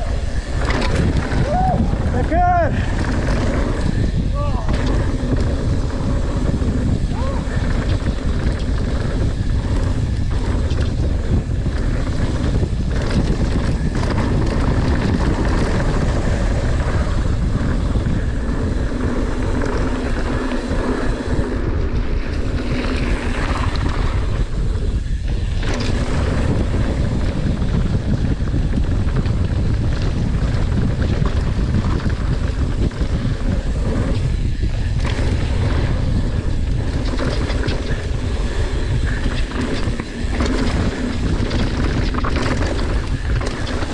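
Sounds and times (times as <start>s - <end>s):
tyres rumbling on dirt trail: 0.0s - 43.9s
wind rushing over microphone: 0.0s - 43.9s
bike knocking over bumps: 22.1s - 43.9s.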